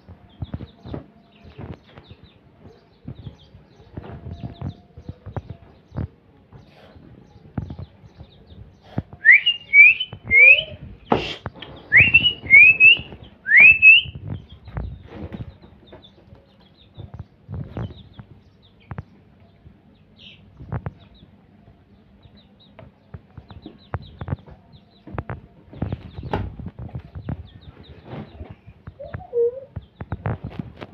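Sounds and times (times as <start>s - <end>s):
chicks peeping: 0.0s - 30.9s.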